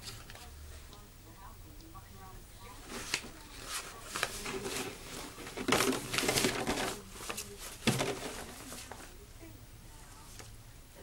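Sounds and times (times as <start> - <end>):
paper and cardboard crinkling: 2.9 - 9.2.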